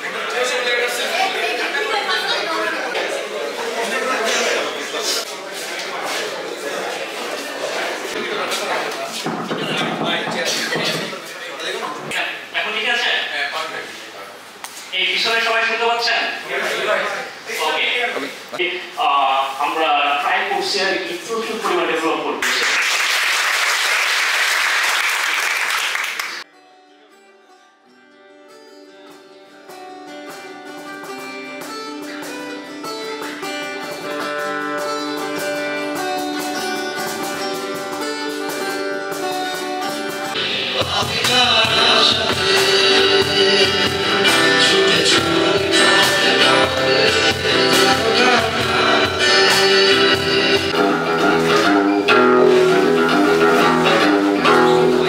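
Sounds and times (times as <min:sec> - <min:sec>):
audience applauding: 0:22.4 - 0:26.4
acoustic guitar music: 0:26.4 - 0:55.0
person singing: 0:40.4 - 0:55.0.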